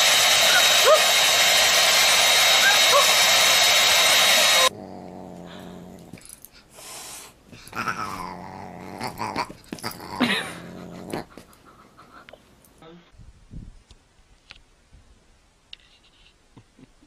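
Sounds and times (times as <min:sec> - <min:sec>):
hair dryer running: 0:00.0 - 0:04.7.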